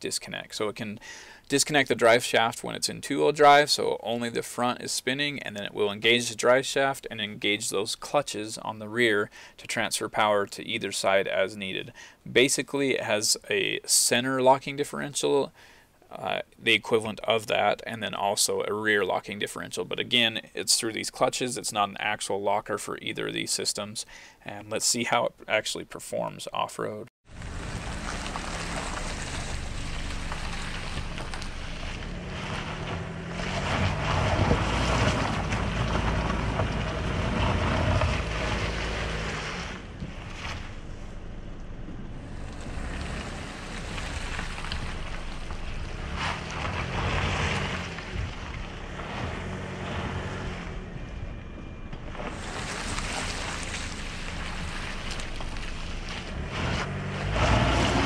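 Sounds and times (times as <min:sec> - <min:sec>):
car engine revving: 0:27.3 - 0:58.0.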